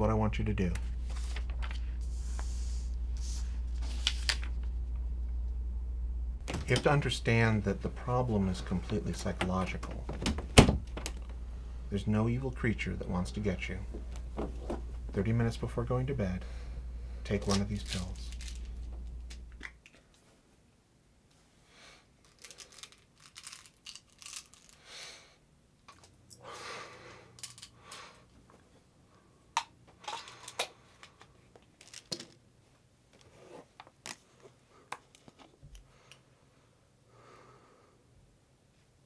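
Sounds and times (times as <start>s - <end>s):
plastic bottles crinkling: 17.3s - 19.9s, 22.2s - 24.8s, 30.0s - 32.4s
plastic caps clicking: 29.6s - 32.4s.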